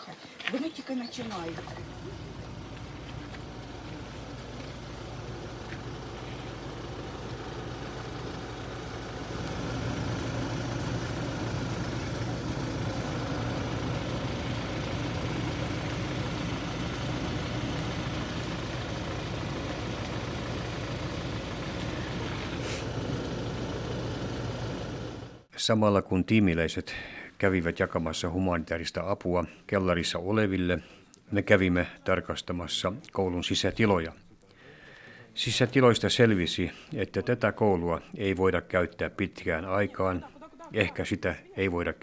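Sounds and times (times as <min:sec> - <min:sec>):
vehicle engine idling: 0:01.1 - 0:25.5.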